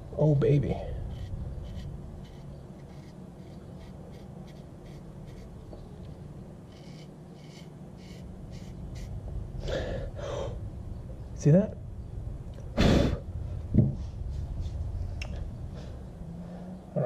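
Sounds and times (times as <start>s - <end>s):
knife blade scratching hair: 1.0s - 5.6s, 6.6s - 9.1s.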